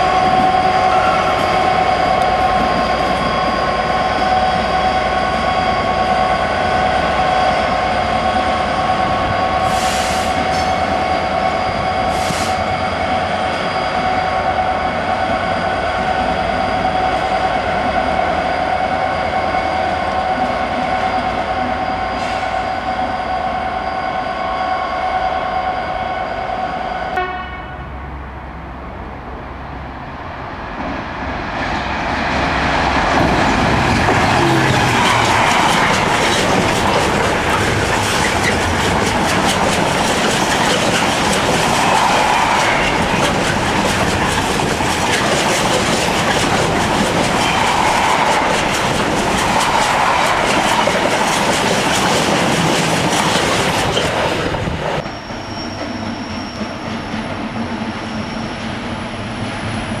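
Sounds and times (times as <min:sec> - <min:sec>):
approaching train rumble: 0:00.0 - 1:00.0
diesel locomotive engine running: 0:27.9 - 1:00.0.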